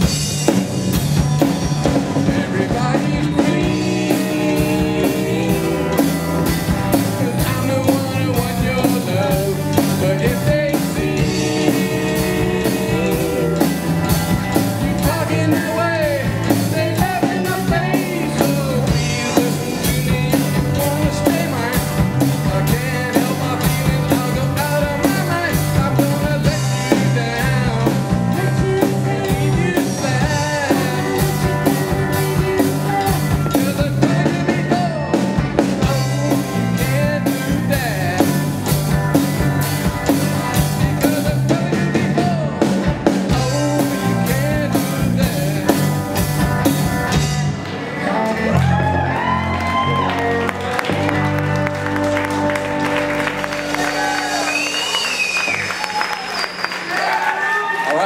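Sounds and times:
drum kit steady beat: 0.0 - 47.7
electric bass: 0.0 - 55.9
electric guitar: 0.0 - 56.5
person singing lead vocal: 1.9 - 38.8, 40.5 - 46.3, 47.9 - 50.1.

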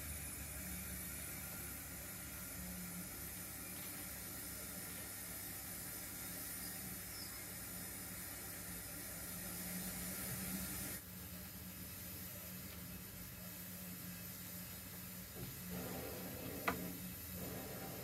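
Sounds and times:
constant hiss: 0.0 - 18.0
model locomotive low hum: 12.3 - 18.0.

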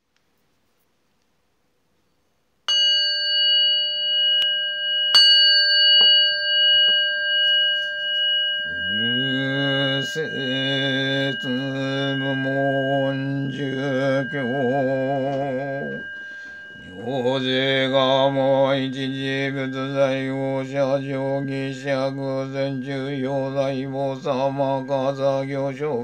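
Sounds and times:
bowl bell ringing: 2.7 - 26.0
low voice chanting: 8.6 - 26.0.

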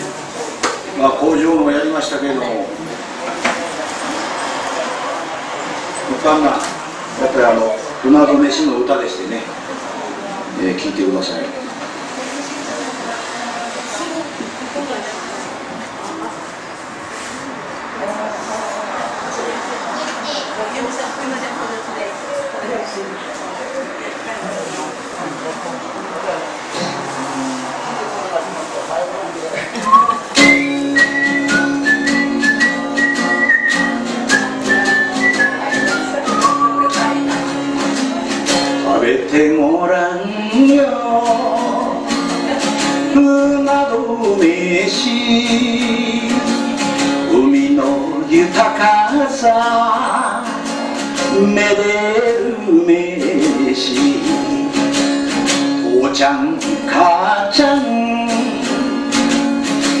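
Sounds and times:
strummed acoustic guitar: 26.6 - 60.0
high lead guitar melody: 26.8 - 27.9, 29.8 - 44.0
man singing: 38.7 - 50.6, 51.2 - 54.9, 55.8 - 59.1.

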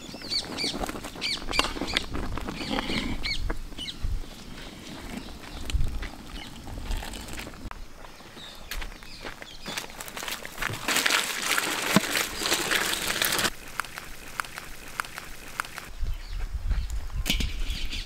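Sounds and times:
birds chirping: 0.0 - 10.3
water boiling in pot: 10.5 - 13.5.

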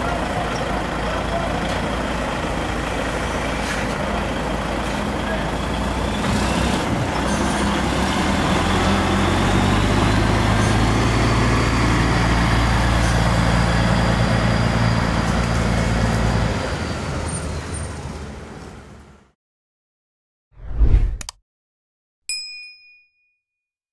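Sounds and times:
truck diesel engine drone: 0.0 - 19.2.

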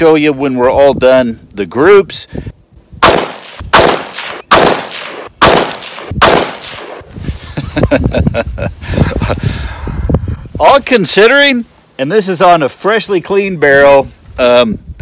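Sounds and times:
rifle shots: 3.0 - 7.0.

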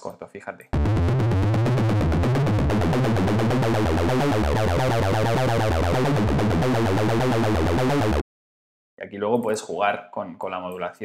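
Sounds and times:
acid techno synth lead pulses: 0.8 - 8.2.

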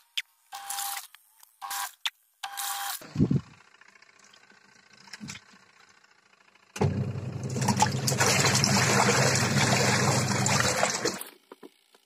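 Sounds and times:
low electric hum: 0.0 - 12.0
water rushing into washing machine: 6.8 - 11.3.

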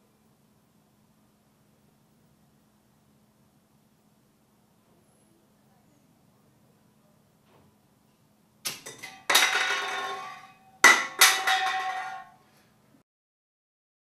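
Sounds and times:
can exploding with metallic bang: 8.7 - 12.3
ringing clang from can: 8.7 - 12.4.

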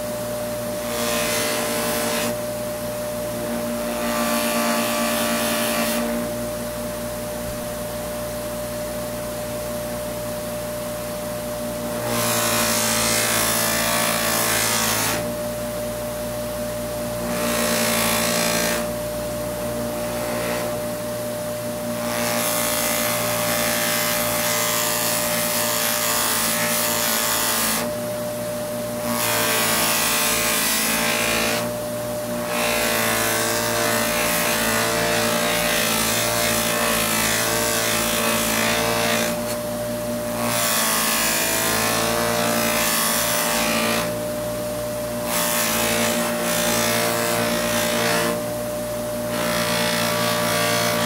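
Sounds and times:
bench buffer motor hum: 0.0 - 51.0.

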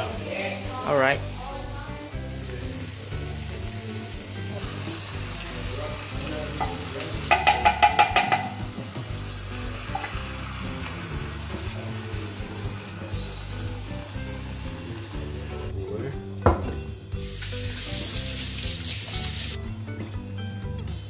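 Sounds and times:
onions sizzling in a pot: 0.0 - 19.7
background music: 0.0 - 21.0
ringing taps: 7.3 - 8.6.

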